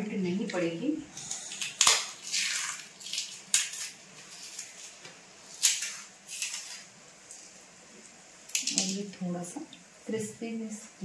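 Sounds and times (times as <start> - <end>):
toppings rustling on steel plate: 2.1 - 7.6.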